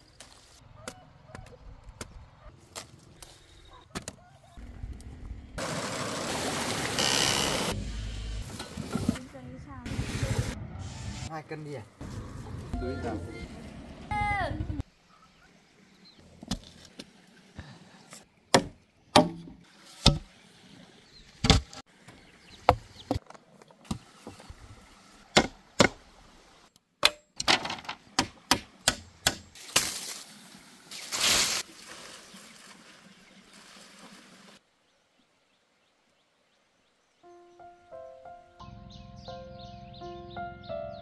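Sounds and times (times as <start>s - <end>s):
rough scraping noise: 5.6s - 9.2s.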